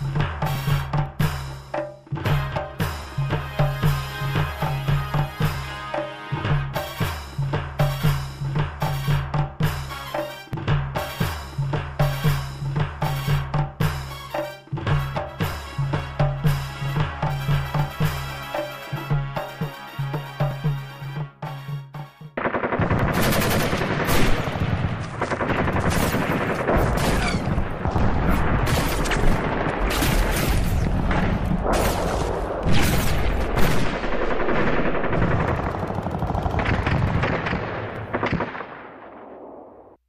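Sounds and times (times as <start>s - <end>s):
rapid gunfire: 22.4s - 39.7s.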